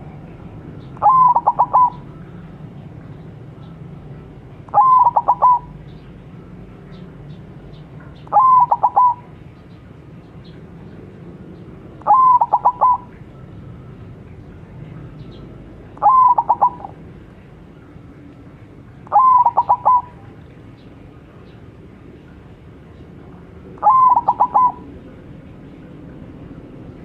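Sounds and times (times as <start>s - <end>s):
steady low hum: 0.0s - 27.0s
dove cooing: 1.0s - 2.5s, 4.7s - 5.8s, 8.2s - 9.4s, 12.0s - 13.4s, 15.9s - 17.2s, 19.0s - 20.4s, 23.7s - 25.1s.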